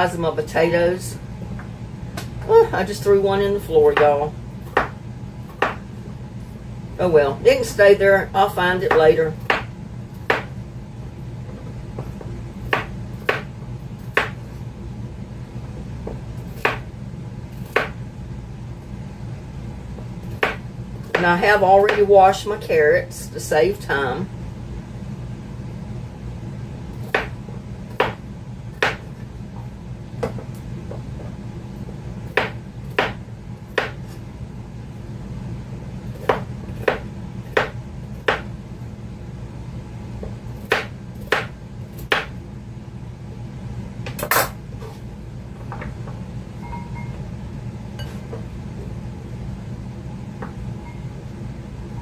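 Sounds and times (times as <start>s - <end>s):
steady low hum: 0.0s - 52.0s
knife chopping on cutting board: 4.7s - 5.8s, 8.9s - 10.5s, 12.7s - 13.5s, 14.1s - 14.4s, 16.5s - 16.9s, 17.6s - 18.0s, 20.4s - 21.3s, 27.0s - 28.2s, 28.8s - 29.1s, 32.3s - 34.1s, 36.1s - 38.5s, 40.6s - 42.3s.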